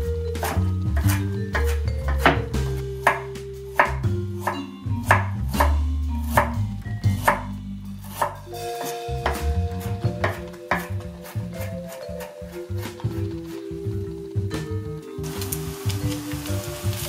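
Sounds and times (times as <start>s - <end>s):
background music: 0.0s - 17.0s
knife chopping on wooden board: 0.4s - 3.2s, 7.2s - 7.5s, 8.1s - 13.2s.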